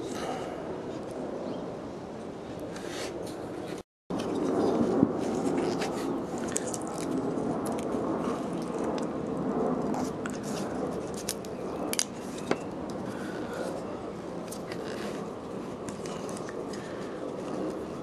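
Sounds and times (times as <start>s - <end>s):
steady background noise: 0.0s - 18.0s
small crackles and tearing: 4.2s - 9.2s, 9.8s - 13.8s.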